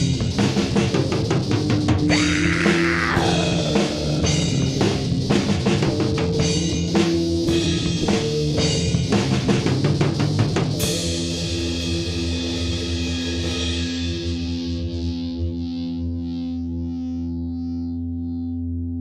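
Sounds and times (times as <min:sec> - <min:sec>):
drum kit beating: 0:00.0 - 0:14.7
hard rock band playing: 0:00.0 - 0:15.1.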